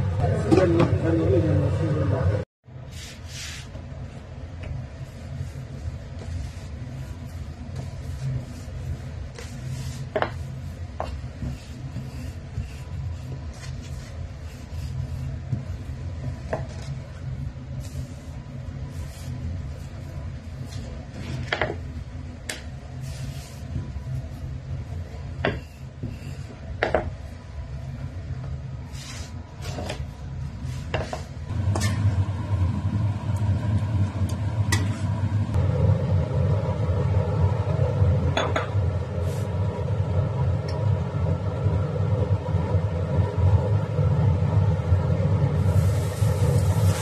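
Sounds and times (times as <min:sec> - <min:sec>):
steady low hum: 0:00.0 - 0:47.0
rolling pin rubbing dough: 0:04.6 - 0:21.9, 0:28.8 - 0:32.0.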